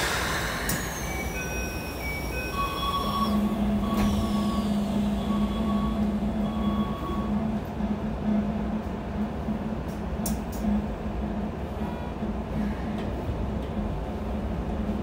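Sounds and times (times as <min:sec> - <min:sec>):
electric train equipment hum: 0:00.0 - 0:15.0
short beeping tones: 0:00.9 - 0:07.3.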